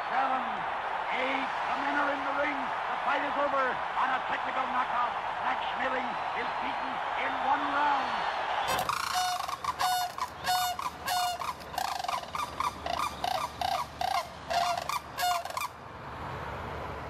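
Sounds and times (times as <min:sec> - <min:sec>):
crane chicks peeping: 0:08.7 - 0:15.7.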